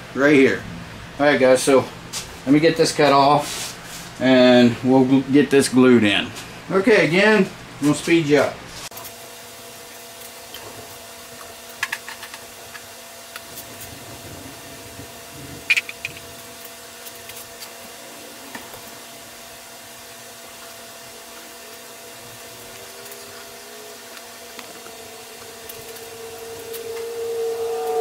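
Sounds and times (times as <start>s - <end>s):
steady hum: 12.6s - 28.0s.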